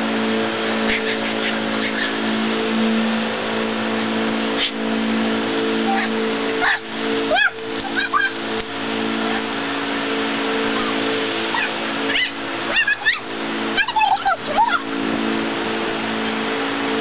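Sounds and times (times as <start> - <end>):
steady machine drone: 0.0 - 17.0
short squeaky calls: 0.9 - 2.3.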